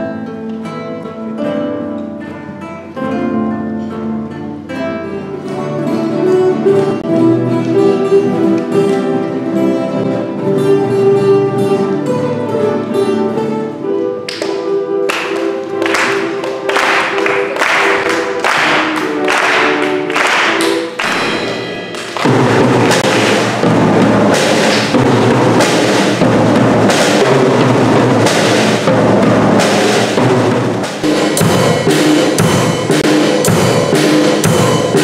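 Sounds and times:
acoustic guitars playing: 0:00.0 - 0:35.0
applause: 0:14.3 - 0:23.5.

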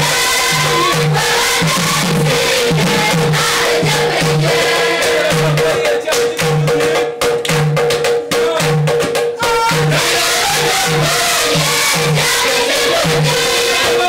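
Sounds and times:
youth choir singing: 0:00.0 - 0:07.1, 0:09.6 - 0:14.0
low beat: 0:00.0 - 0:13.9
hand clapping: 0:04.7 - 0:09.2.

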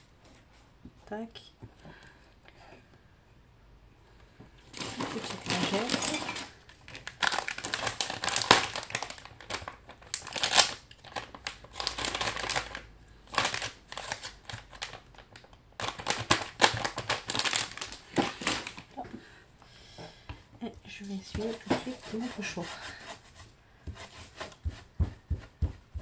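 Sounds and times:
plastic wipes pack crinkling: 0:04.7 - 0:19.0.

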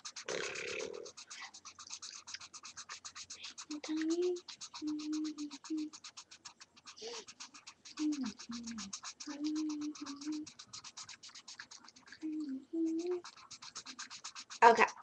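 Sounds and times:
marker scribbling on paper: 0:00.0 - 0:15.0
person humming: 0:03.4 - 0:06.0, 0:07.9 - 0:10.6, 0:12.2 - 0:13.4.

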